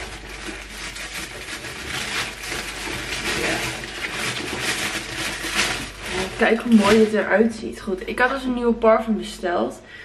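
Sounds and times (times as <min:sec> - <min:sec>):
packaging rustling and crinkling: 0:00.0 - 0:07.6.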